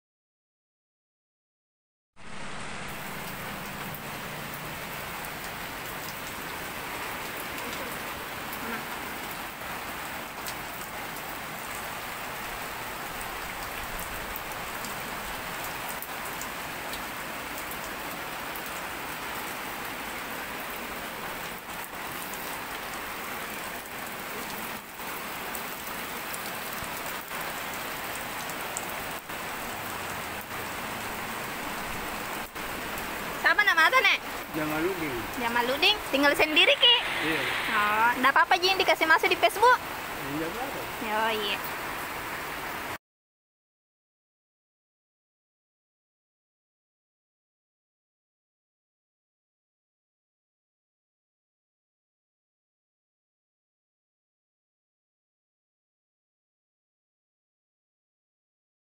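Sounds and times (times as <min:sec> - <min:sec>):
steady hiss: 0:36.1 - 0:38.9.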